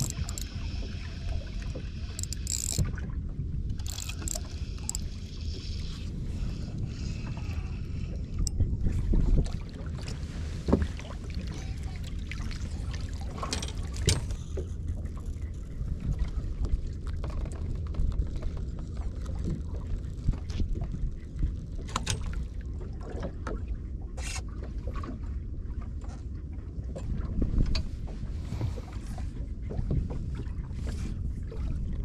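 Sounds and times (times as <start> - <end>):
low rumble of wind: 0.0 - 32.0
water sloshing against boat hull: 0.0 - 32.0
knocks and taps on boat: 9.1 - 11.0, 26.8 - 31.0.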